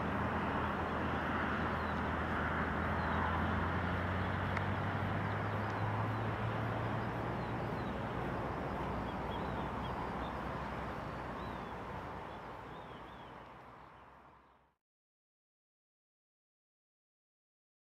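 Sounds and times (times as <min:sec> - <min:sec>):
distant jet engine rushing: 0:00.0 - 0:13.8.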